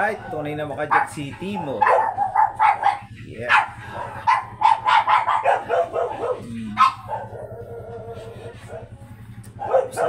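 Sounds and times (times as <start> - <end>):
small dog yapping: 0.9 - 7.6, 9.6 - 10.0.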